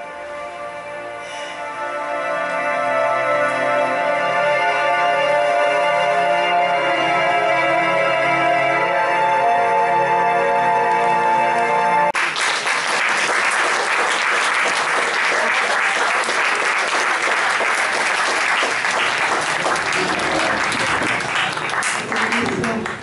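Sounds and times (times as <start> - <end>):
music: 0.0 - 12.2
crowd applauding: 12.2 - 23.0.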